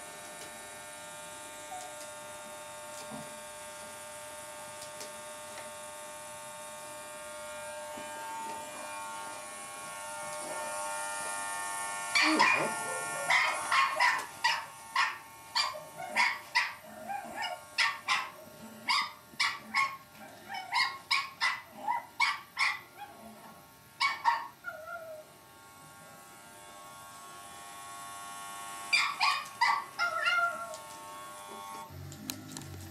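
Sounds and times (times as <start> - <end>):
electric shaver humming: 0.0 - 22.6, 23.6 - 32.9
puppy yapping: 12.1 - 23.2, 24.0 - 25.2, 28.9 - 30.8.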